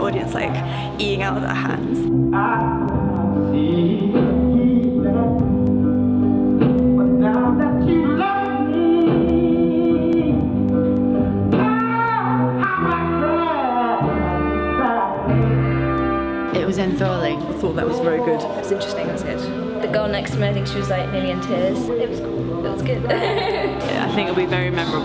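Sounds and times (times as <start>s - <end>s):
guitar: 0.0s - 25.0s
person singing: 6.8s - 15.7s.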